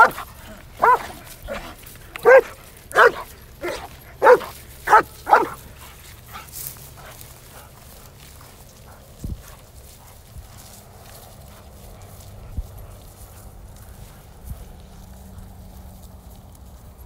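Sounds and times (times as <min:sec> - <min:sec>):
dog barking: 0:00.0 - 0:05.6.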